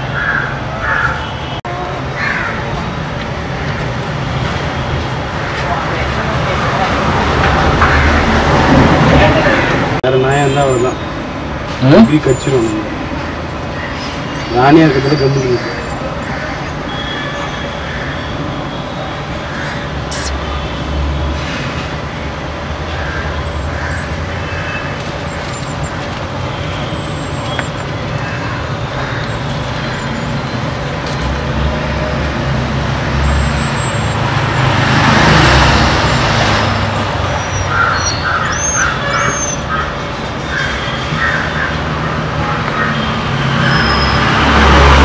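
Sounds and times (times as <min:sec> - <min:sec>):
street traffic: 0:00.0 - 0:45.0
short high chirps: 0:20.1 - 0:20.4.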